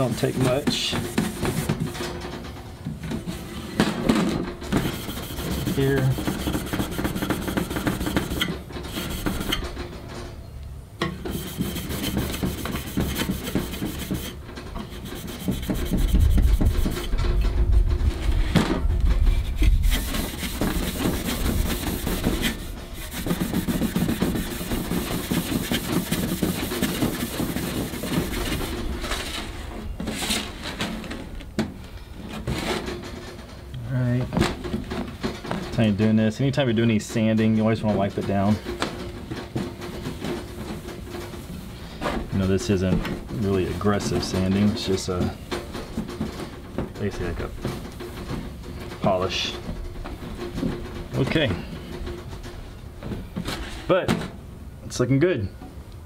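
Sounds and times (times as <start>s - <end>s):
abrasive pad scrubbing metal: 0.0s - 2.0s, 4.7s - 9.7s, 11.2s - 17.2s, 19.4s - 29.4s
low rumble: 17.2s - 19.9s.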